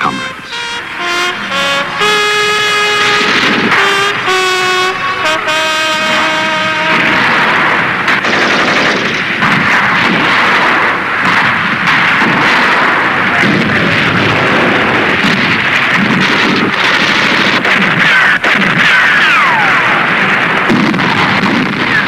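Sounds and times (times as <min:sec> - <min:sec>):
machine-gun fire and gunshots: 0:03.0 - 0:04.2, 0:05.9 - 0:22.0.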